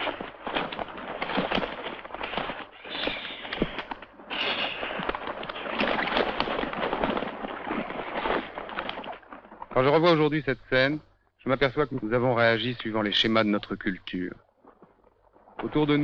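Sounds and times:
tearing at flesh: 0.0 - 9.6
wings flapping and jostling: 0.0 - 10.4, 14.5 - 16.0
vultures hissing calls: 2.2 - 6.6.

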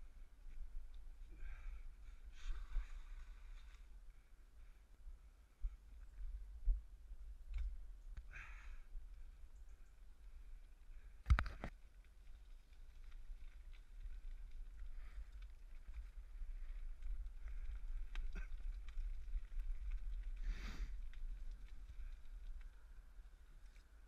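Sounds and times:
bicycle tyres rumbling: 8.3 - 24.0.

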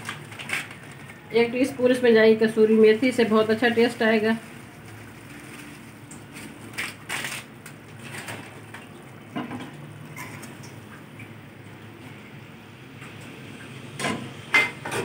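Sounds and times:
dried leaves crackling when crushed: 0.0 - 1.4, 3.5 - 8.6.

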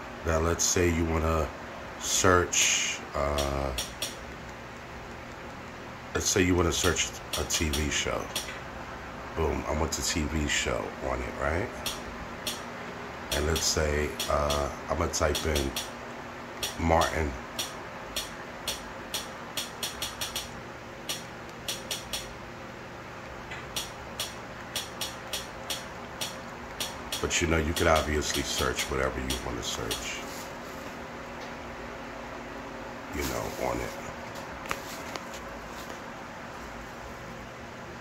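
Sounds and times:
faint steady hum: 0.0 - 38.0
remote buttons clicking: 17.6 - 20.5, 21.1 - 22.3.

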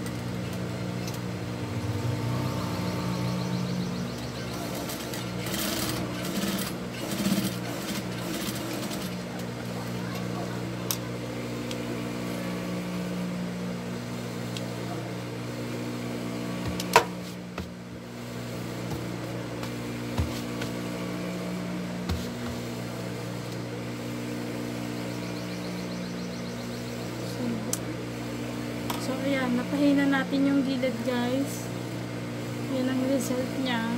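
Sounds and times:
sewing machine motor humming: 1.7 - 13.3.

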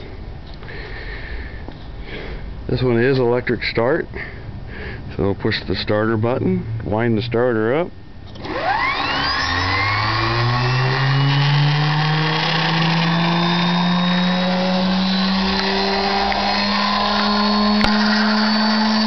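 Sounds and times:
engine starter whine rising: 6.2 - 19.0.

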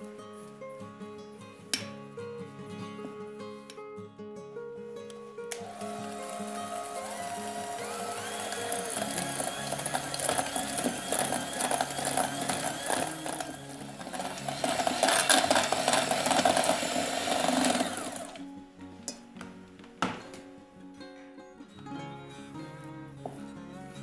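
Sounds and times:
electric hand mixer running: 5.6 - 18.4.

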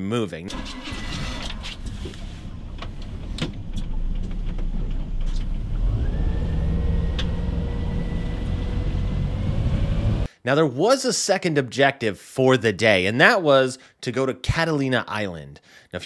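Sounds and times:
engine whine: 0.5 - 10.3
boat engine rumble: 0.6 - 10.3.

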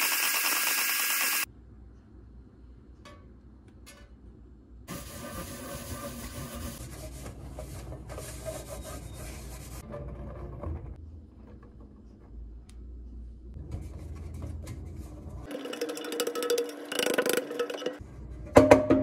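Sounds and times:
paper towel rubbing metal pan: 4.9 - 9.9.

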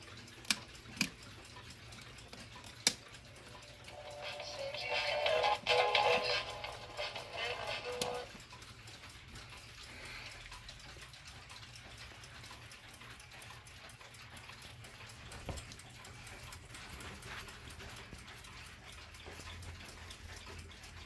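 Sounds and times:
clocks ticking: 0.0 - 21.0
clock radio: 3.3 - 9.2.

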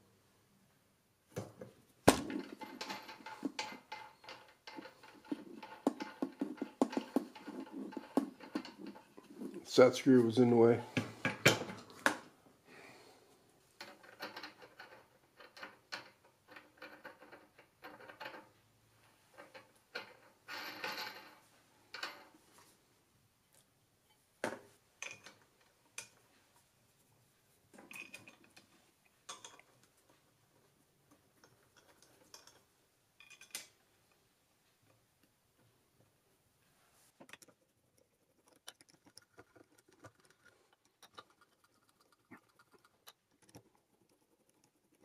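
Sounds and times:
metal tools clicking and clinking: 2.3 - 9.6, 31.4 - 33.8.

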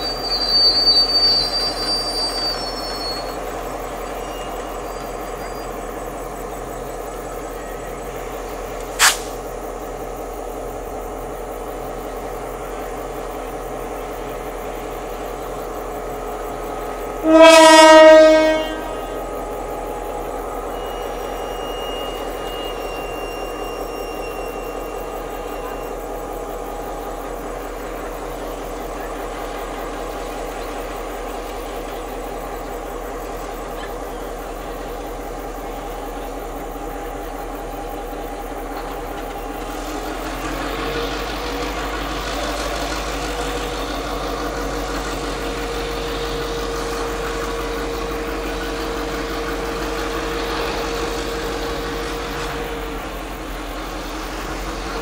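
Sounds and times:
diesel locomotive engine running: 0.0 - 55.0.

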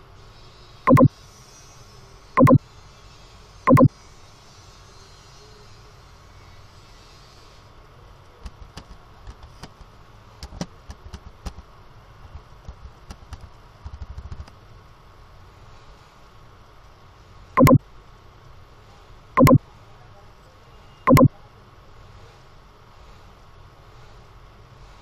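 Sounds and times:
keyboard typing: 0.9 - 1.1, 2.4 - 2.6, 3.7 - 3.9, 17.6 - 17.8, 19.4 - 19.6, 21.1 - 21.3.

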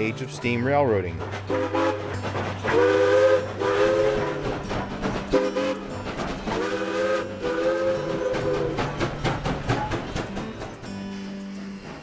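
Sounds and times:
train running: 0.0 - 12.0
steam locomotive chime whistle: 1.5 - 12.0.

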